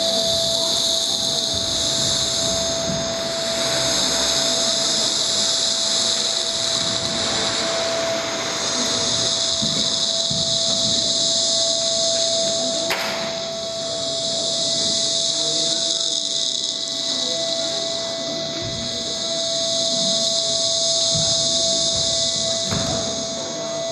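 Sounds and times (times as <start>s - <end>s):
electronic dance music hiss: 0.0s - 23.9s
sharp click: 12.9s - 13.3s.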